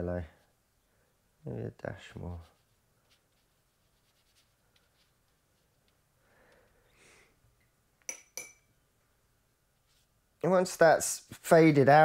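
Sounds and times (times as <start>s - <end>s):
paintbrush clinking on jar: 8.0s - 8.7s.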